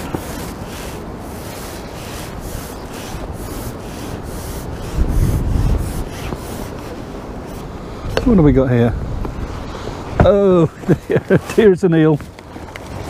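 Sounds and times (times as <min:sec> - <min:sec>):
gusty wind buffeting microphone: 0:00.0 - 0:13.0.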